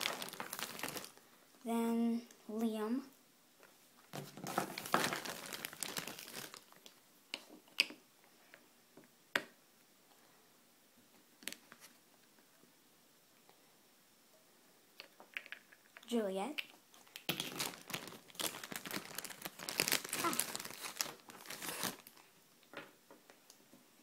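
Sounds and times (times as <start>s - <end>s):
crinkly rustling: 0.0s - 1.2s, 4.1s - 7.0s, 17.3s - 22.3s.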